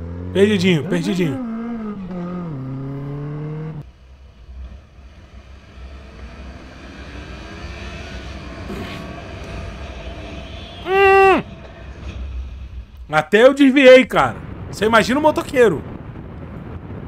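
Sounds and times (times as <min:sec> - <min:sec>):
motorcycle engine running: 0:00.0 - 0:03.9
wind and road noise: 0:00.0 - 0:17.0.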